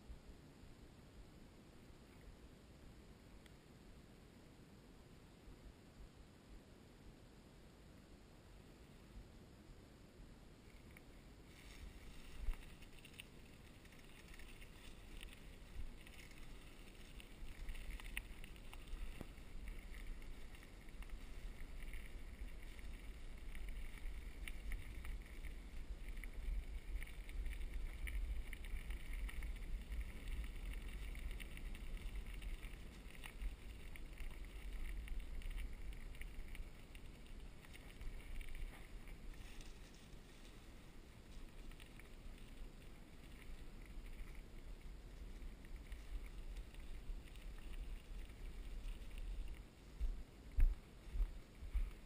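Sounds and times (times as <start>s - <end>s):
bicycle rolling on dirt trail: 10.6s - 52.0s
bike ticks and rattles: 10.7s - 40.6s
tyres crackling over dry leaves: 10.7s - 52.0s.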